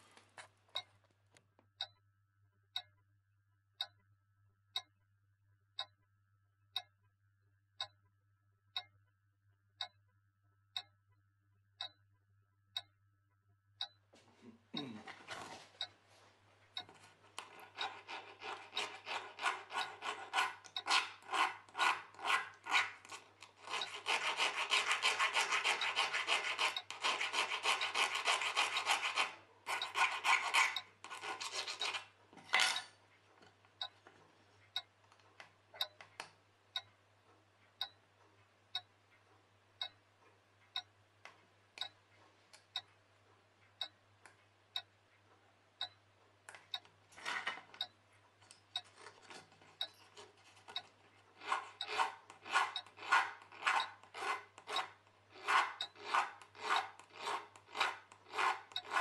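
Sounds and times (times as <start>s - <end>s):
light ticks: 2.8s - 3.0s, 4.8s - 5.0s, 5.8s - 6.1s, 10.8s - 11.0s, 11.8s - 12.1s, 13.8s - 14.0s, 16.8s - 18.0s, 34.6s - 37.0s, 37.6s - 38.0s, 40.6s - 42.9s, 45.8s - 46.9s, 47.8s - 48.9s
file rubbing on steel: 17.4s - 32.1s, 50.1s - 59.0s.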